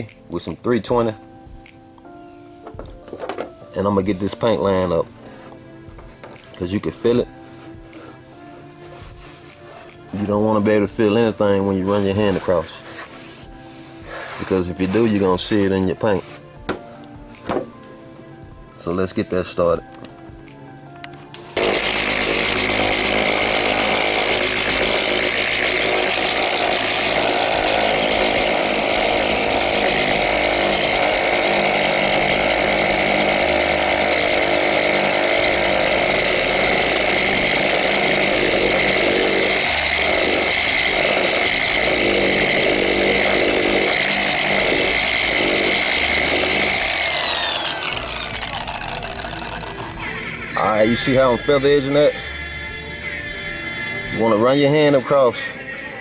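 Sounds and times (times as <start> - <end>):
electric sander motor whining: 21.0 - 55.1.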